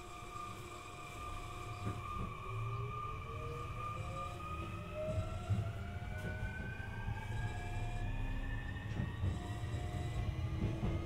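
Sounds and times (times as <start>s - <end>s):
train motors whining: 8.8s - 11.0s.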